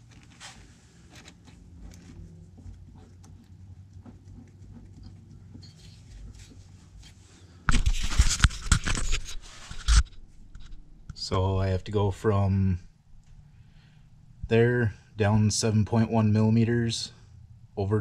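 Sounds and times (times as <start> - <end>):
camera rubbing and knocking: 0.0 - 10.9
low steady hum: 0.0 - 18.0.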